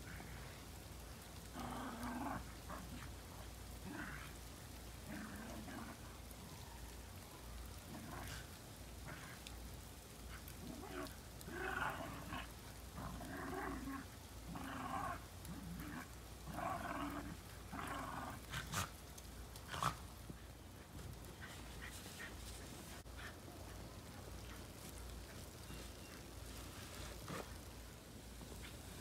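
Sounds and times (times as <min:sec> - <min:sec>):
dogs growling: 0:01.5 - 0:04.4, 0:05.0 - 0:06.2, 0:10.3 - 0:19.0, 0:19.6 - 0:20.5, 0:26.9 - 0:27.7.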